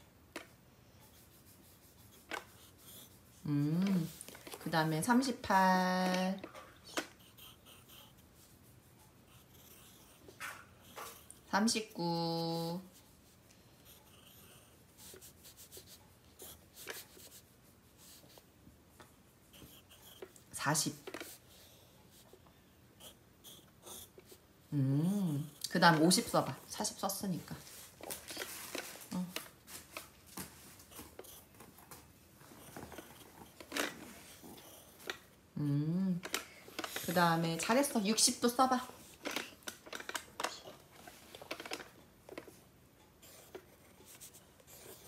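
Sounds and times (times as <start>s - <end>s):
pencil scratching on paper: 1.0s - 18.5s, 19.3s - 22.4s, 23.0s - 24.5s, 30.8s - 31.6s, 32.5s - 35.4s, 36.8s - 39.2s, 43.2s - 45.0s.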